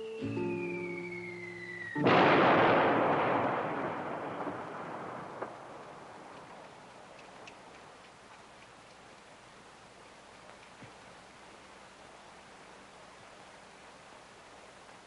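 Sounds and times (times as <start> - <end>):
falling whistle: 0.0 - 2.5
cannon blast rumbling: 2.0 - 6.5.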